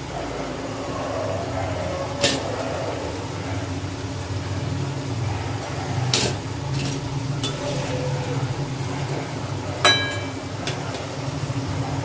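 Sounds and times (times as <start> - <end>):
food deep-frying in oil: 2.1 - 12.0
metal spoon clinking cookware: 6.2 - 7.9, 9.8 - 10.8.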